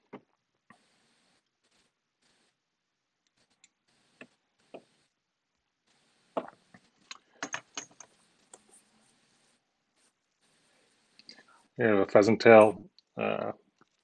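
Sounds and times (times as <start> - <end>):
small tools clicking: 7.0 - 8.6.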